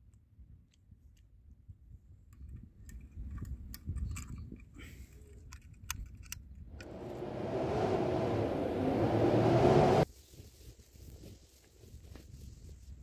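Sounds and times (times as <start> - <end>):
low rumble: 6.8 - 10.0.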